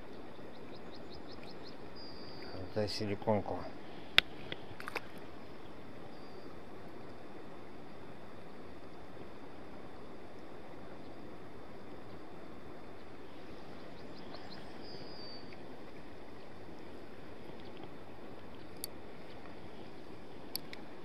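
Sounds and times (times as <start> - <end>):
flowing river water: 0.0 - 21.0
bird chirp: 0.3 - 2.9, 6.1 - 6.5, 13.7 - 15.6.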